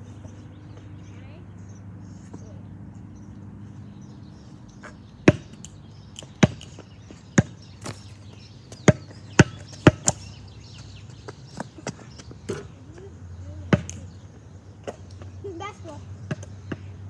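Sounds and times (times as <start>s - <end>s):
basketball bouncing on asphalt: 4.0s - 17.0s.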